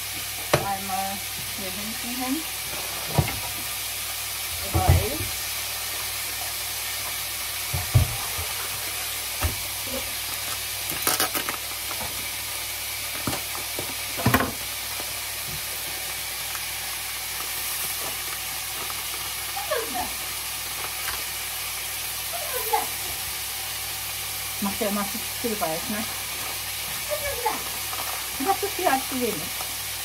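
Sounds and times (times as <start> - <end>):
meat sizzling in a frying pan: 0.0 - 30.0
plastic bag crinkling: 9.8 - 19.6, 20.2 - 21.5, 26.0 - 29.8.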